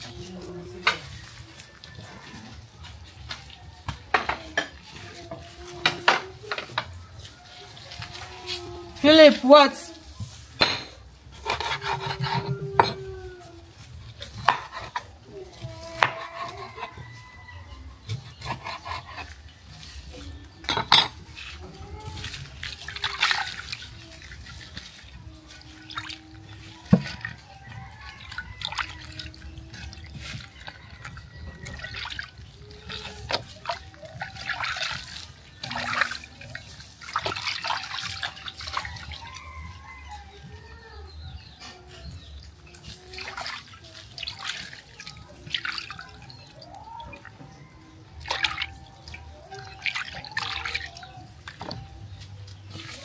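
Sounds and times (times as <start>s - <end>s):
water splashing and dripping: 0.0s - 11.4s, 19.2s - 53.0s.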